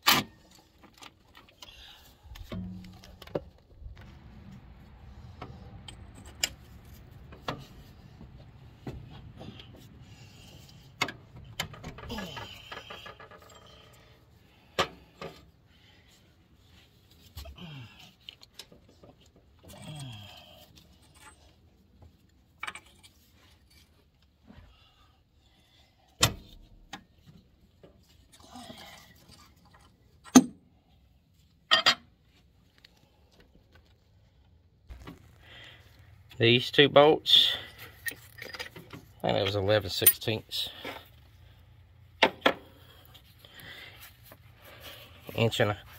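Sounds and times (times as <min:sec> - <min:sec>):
metal tools clinking: 0:37.5 - 0:40.8.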